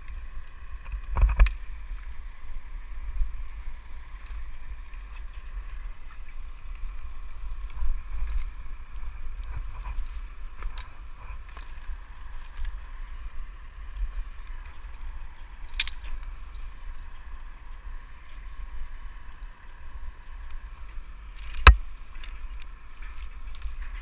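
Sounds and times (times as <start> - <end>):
wind rumbling on microphone: 0.0 - 24.0
metal rigging clinking and rattling: 7.6 - 11.8, 14.9 - 16.6, 21.3 - 24.0.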